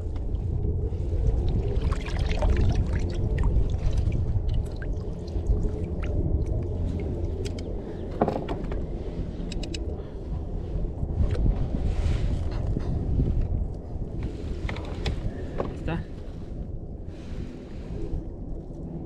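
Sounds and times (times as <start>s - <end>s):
wind rumble on microphone: 0.0s - 19.0s
water splashing around kayak: 1.0s - 7.8s.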